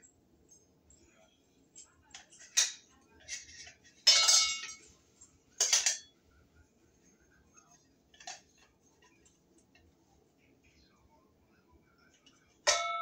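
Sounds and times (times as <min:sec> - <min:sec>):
metal fan parts clattering: 0:01.8 - 0:04.9, 0:05.6 - 0:06.1, 0:08.1 - 0:09.9.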